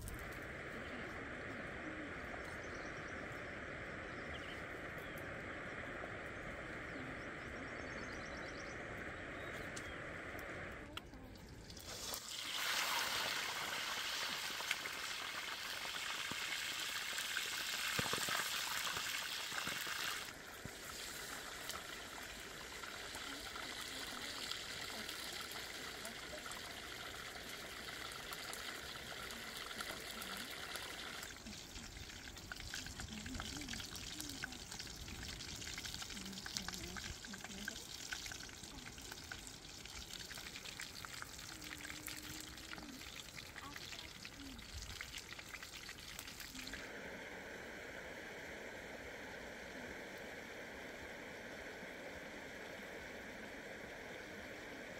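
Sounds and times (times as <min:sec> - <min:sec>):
meat sizzling in hot oil: 0:11.7 - 0:31.4, 0:32.0 - 0:42.0, 0:42.6 - 0:46.8.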